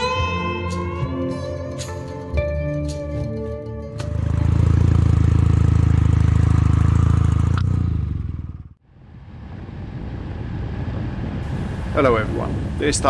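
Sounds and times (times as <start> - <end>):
motorcycle engine running: 4.0 - 12.8
road noise: 4.0 - 13.0
wind noise: 9.0 - 13.0.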